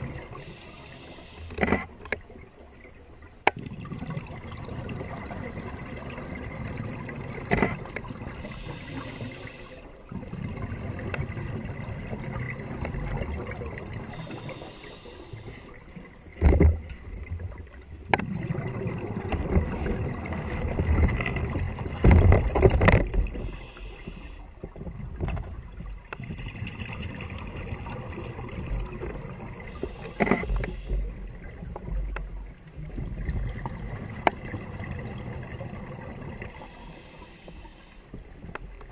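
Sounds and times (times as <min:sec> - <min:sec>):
low underwater gurgle: 0:00.0 - 0:38.9
diver breathing through regulator: 0:00.4 - 0:01.6, 0:08.4 - 0:09.9, 0:14.1 - 0:15.8, 0:23.3 - 0:24.5, 0:29.7 - 0:31.1, 0:36.5 - 0:38.1
bubbling exhalations: 0:18.2 - 0:22.0.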